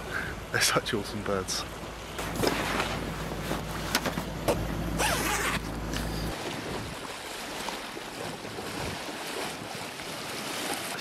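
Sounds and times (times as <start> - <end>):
low steady hum: 0.0 - 7.4
water noise: 0.0 - 11.0
wind: 0.0 - 11.0.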